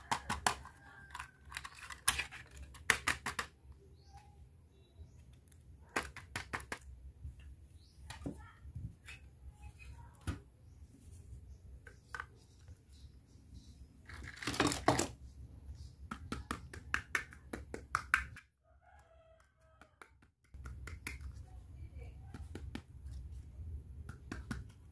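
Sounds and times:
plastic toys clicking and tapping: 0:00.0 - 0:03.8, 0:05.3 - 0:07.0, 0:14.0 - 0:15.2, 0:16.0 - 0:18.5, 0:19.4 - 0:21.5.

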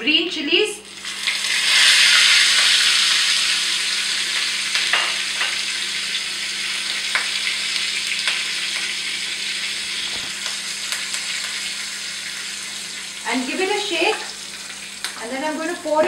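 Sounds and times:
chillies sizzling in oil: 0:00.8 - 0:16.0
oil popping: 0:10.0 - 0:11.7.

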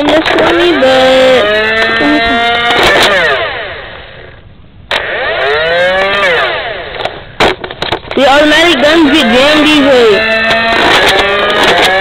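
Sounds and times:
blaster flywheel motors whirring: 0:00.0 - 0:12.0
sharp click: 0:10.5 - 0:12.0.

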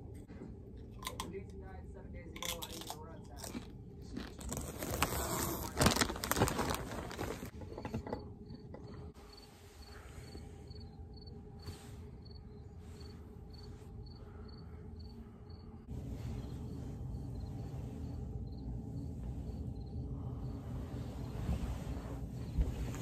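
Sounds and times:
faint steady hum: 0:00.0 - 0:23.0
handling noise rustling and knocking: 0:06.1 - 0:09.2
cricket chirping: 0:07.7 - 0:21.4.

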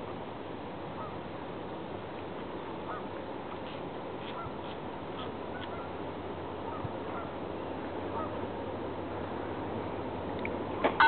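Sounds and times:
steady background noise: 0:00.0 - 0:11.0.

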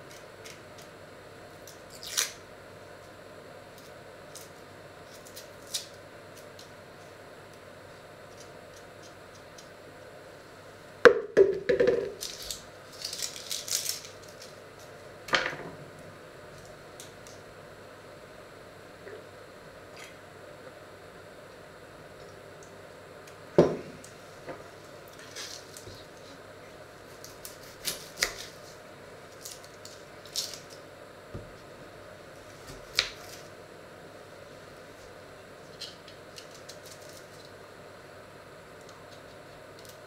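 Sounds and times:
onion skin crackling: 0:01.6 - 0:02.4, 0:12.1 - 0:15.1, 0:27.1 - 0:30.9, 0:35.7 - 0:37.5
hard knock on wooden board: 0:11.1 - 0:12.2.

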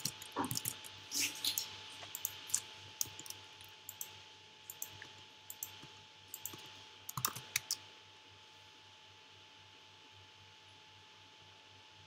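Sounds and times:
computer keyboard keystrokes: 0:00.0 - 0:00.9, 0:02.1 - 0:04.1, 0:04.7 - 0:07.8
faint steady hum: 0:00.0 - 0:12.0.

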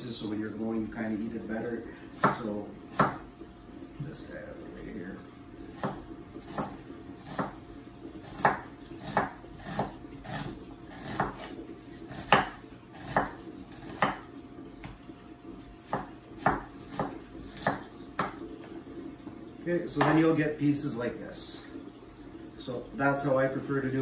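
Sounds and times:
knife slicing onion: 0:08.2 - 0:14.2.

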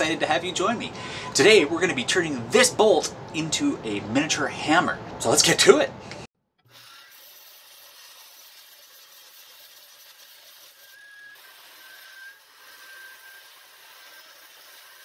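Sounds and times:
belt grinder grinding steel: 0:06.7 - 0:15.0.

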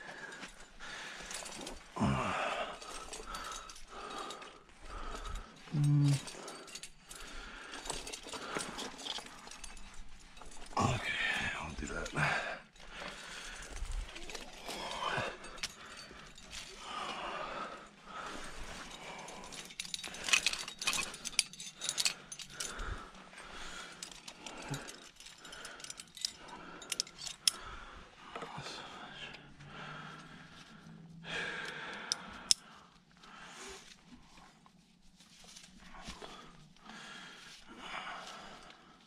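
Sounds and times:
climbing hardware clinking: 0:00.1 - 0:29.5.

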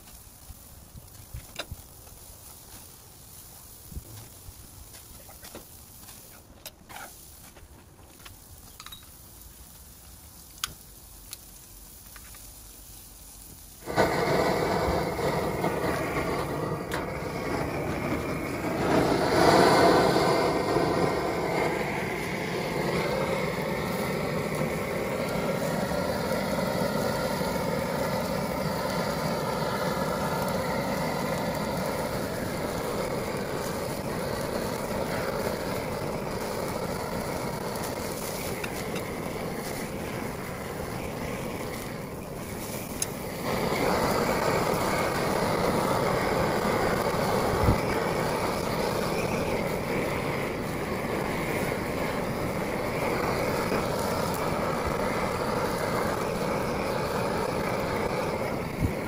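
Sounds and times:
gas torch flame rushing: 0:00.0 - 0:59.0.

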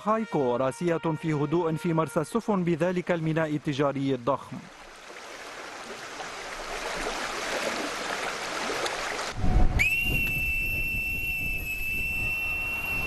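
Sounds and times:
boatswain's pipe whistle: 0:09.4 - 0:13.0.

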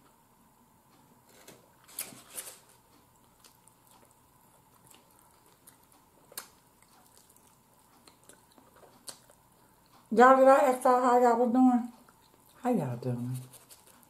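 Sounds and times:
chicken wing being chewed: 0:01.8 - 0:10.1, 0:11.9 - 0:14.0.

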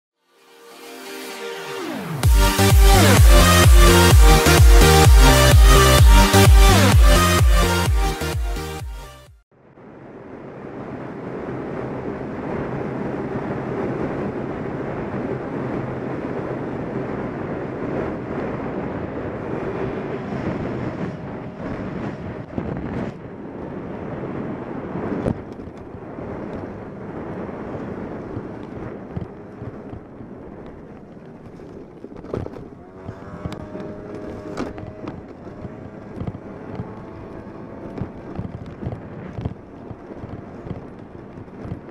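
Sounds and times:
wind buffeting microphone: 0:09.7 - 0:41.9
scooter engine running: 0:25.2 - 0:41.9.

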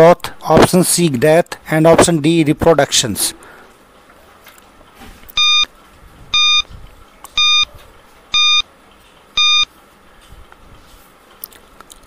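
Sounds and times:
high electronic beeps: 0:05.4 - 0:05.7, 0:06.4 - 0:06.6, 0:07.4 - 0:07.7, 0:08.4 - 0:08.6, 0:09.4 - 0:09.7.

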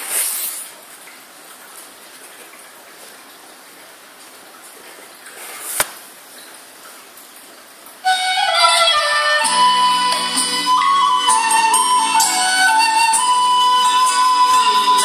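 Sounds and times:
scrape ending in sharp knock: 0:05.4 - 0:06.0.

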